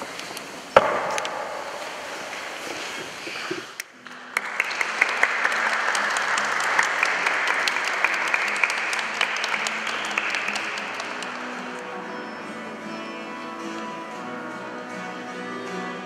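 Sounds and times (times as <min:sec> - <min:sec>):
crowd clapping: 0:04.0 - 0:12.0.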